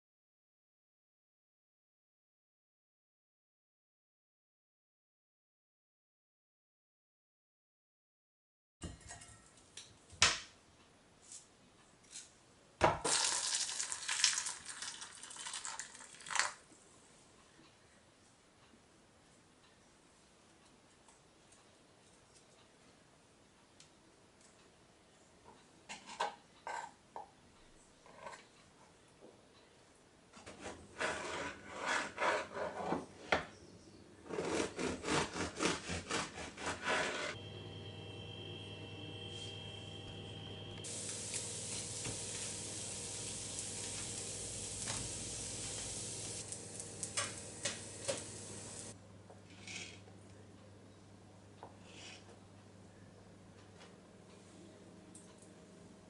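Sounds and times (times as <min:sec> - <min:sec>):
water splashing into metal bowl: 0:13.1 - 0:16.6
bread knife sawing baguette: 0:30.6 - 0:32.7, 0:34.3 - 0:37.4.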